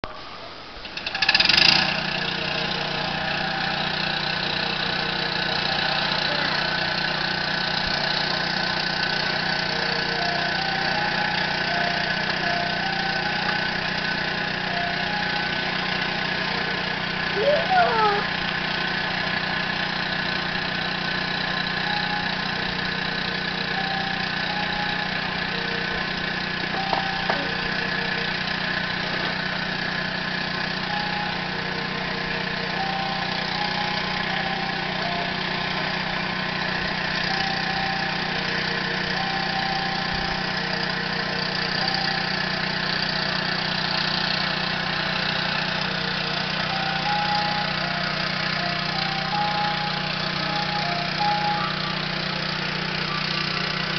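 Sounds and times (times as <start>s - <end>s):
diesel engine idling: 0.1s - 53.9s.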